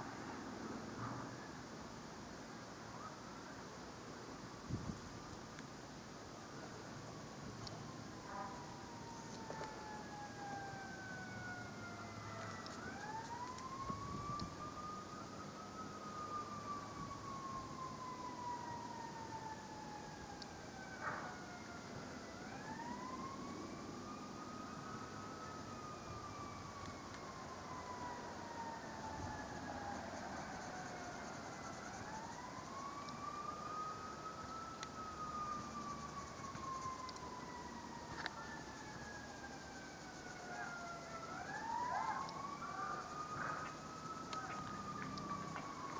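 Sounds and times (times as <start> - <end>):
faint siren wailing: 0.0 - 3.8, 6.4 - 45.9
steady hiss: 0.0 - 15.3
faint clicks: 12.4 - 13.7, 36.5 - 37.4.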